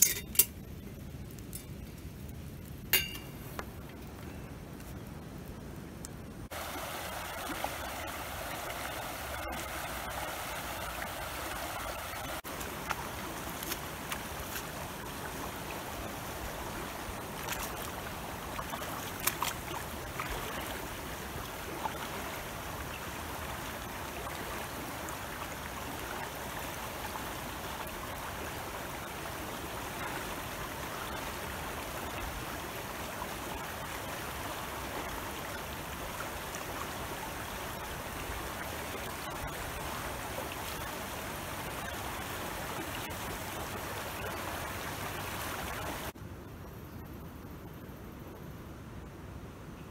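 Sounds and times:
river flowing over stones: 6.4s - 46.2s
person wading splashes: 12.4s - 25.0s.

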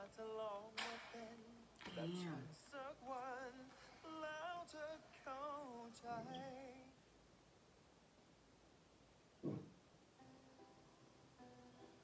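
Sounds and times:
person singing with vibrato: 0.0s - 7.0s.

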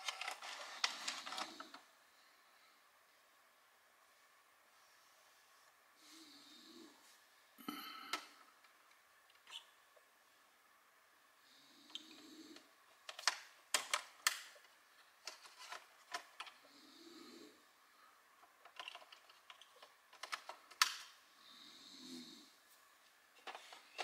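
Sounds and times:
soft handling noise: 22.6s - 24.0s.

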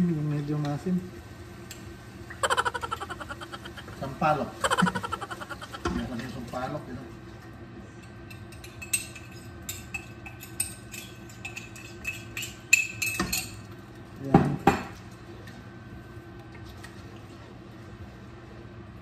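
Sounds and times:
utensils clinking against metal pot: 8.3s - 13.6s.

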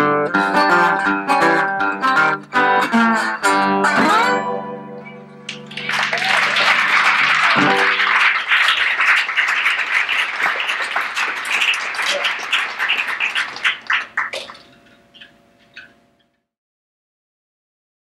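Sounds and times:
audience applauding: 5.5s - 14.8s.

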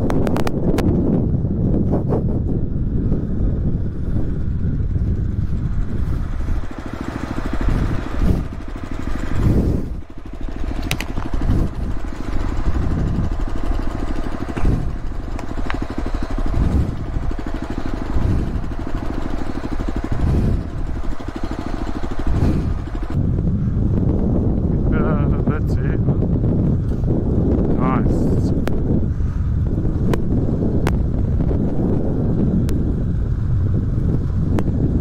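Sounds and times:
motorcycle engine revving: 0.0s - 35.0s
sharp clicks: 10.6s - 11.4s, 15.3s - 16.2s.

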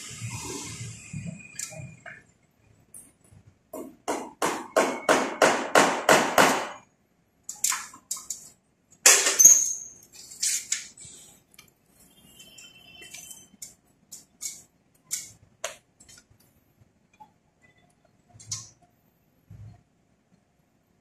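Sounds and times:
cord rustling and scraping on wall: 10.0s - 17.0s.

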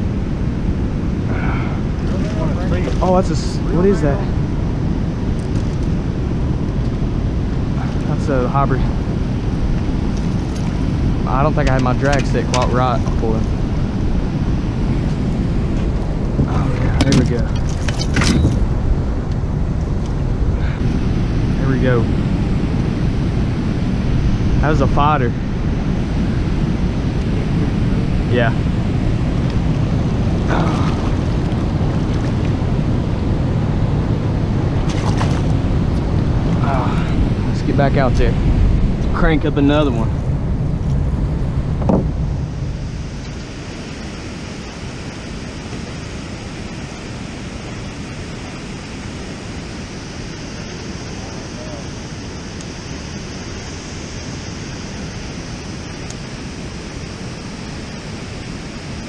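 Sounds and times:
river current rushing: 0.0s - 59.0s
wind buffeting microphone: 0.0s - 59.0s
water rushing over a dam: 28.3s - 28.7s, 29.6s - 38.3s
water splashing: 34.8s - 36.0s.

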